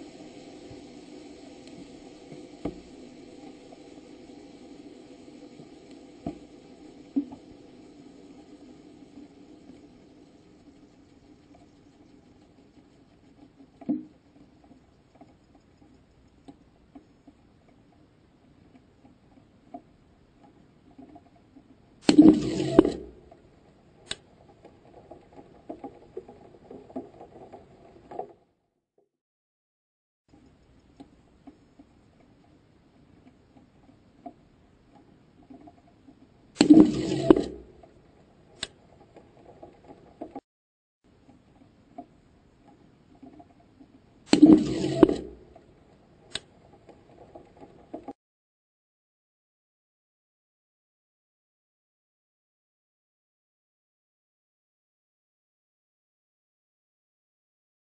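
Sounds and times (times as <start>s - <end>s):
faint ticks and knocks: 41.1s - 44.4s.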